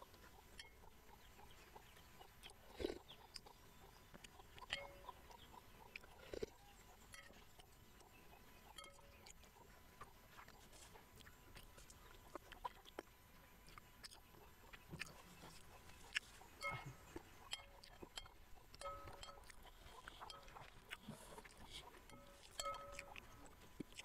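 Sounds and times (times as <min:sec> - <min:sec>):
quiet chewing: 0:00.0 - 0:24.0
soft gulps: 0:02.5 - 0:03.6.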